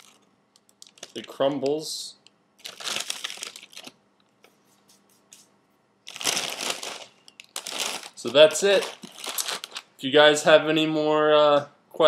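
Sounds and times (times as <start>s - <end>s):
cereal crunching: 6.1s - 9.9s.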